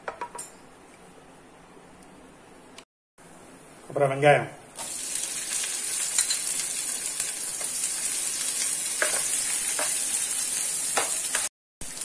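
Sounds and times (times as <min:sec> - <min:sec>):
onions sizzling in oil: 0:04.8 - 0:12.0.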